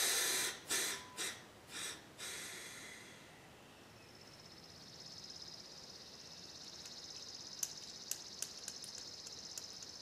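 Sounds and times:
compressed air hissing: 0:00.0 - 0:03.2
faint high pulsing whir: 0:00.0 - 0:10.0.

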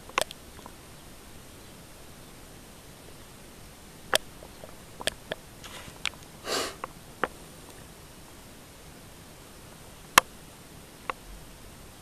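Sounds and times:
sharp clicks: 0:00.0 - 0:00.8
person sniffing: 0:05.6 - 0:06.9.

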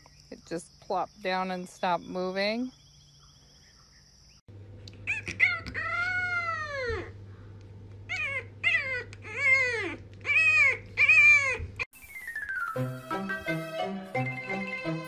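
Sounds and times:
pet's drawn-out calls: 0:05.0 - 0:07.2, 0:08.0 - 0:11.8.

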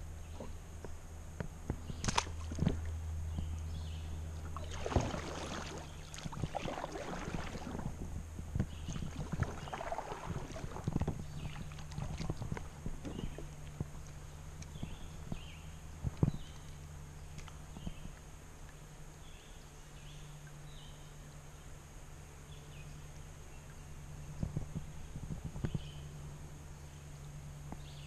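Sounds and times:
paddle splashing in water: 0:04.4 - 0:08.0, 0:08.7 - 0:13.8.

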